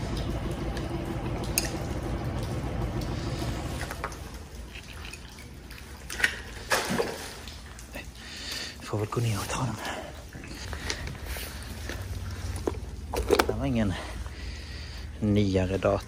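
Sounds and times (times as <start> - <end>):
water trickling and dripping: 0.0 - 16.0.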